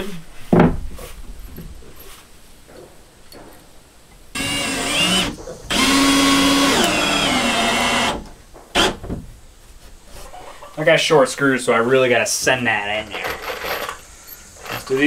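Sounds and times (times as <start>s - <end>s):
cordless drill driving screws: 4.4s - 9.0s.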